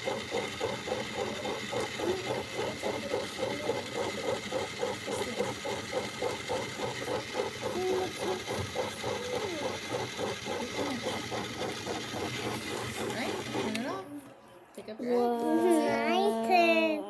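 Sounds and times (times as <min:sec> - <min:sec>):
small electric motor whirring: 0:00.0 - 0:14.0.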